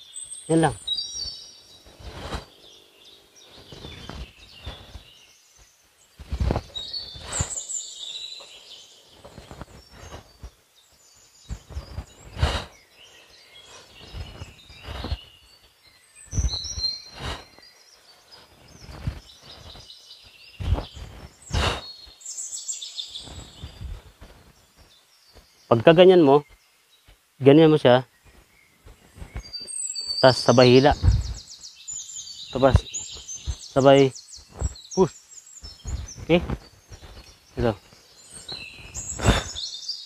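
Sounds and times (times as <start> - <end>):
birds chirping and trilling: 0.0 - 40.0
soft thumps and rustles: 6.2 - 7.5, 20.5 - 21.8, 30.8 - 31.4, 34.5 - 34.8, 35.6 - 37.3.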